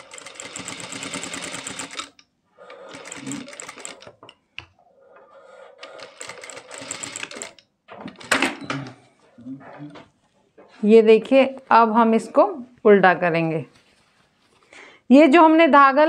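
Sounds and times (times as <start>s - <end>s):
sewing machine stitching: 0.0s - 4.3s, 5.8s - 8.5s.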